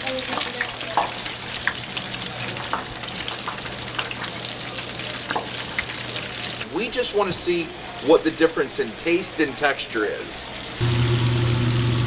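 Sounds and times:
deep fryer oil sizzling: 0.0s - 6.7s, 10.2s - 12.0s.

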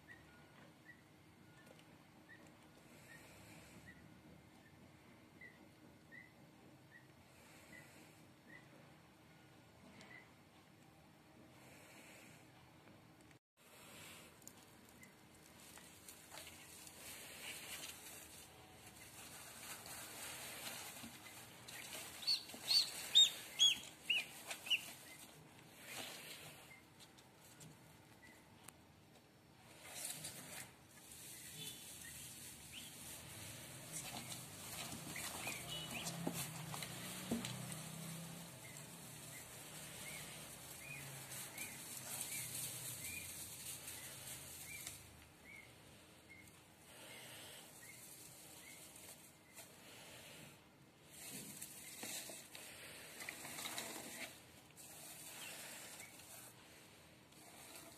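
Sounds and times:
duckling peeping: 5.4s - 7.9s, 19.0s - 26.9s, 31.2s - 46.6s
rustling of straw: 13.7s - 27.7s, 29.7s - 57.9s.

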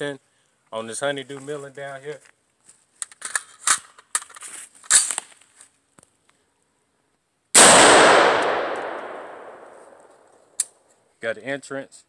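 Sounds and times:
light clicks and rustles: 1.2s - 6.4s
gunshot crack: 7.6s - 10.1s.

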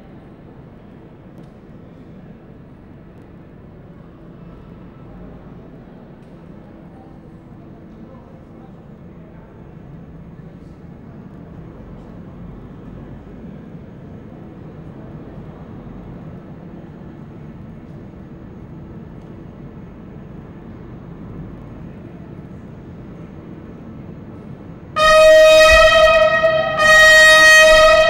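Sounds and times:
locomotive rumbling: 9.8s - 28.0s.

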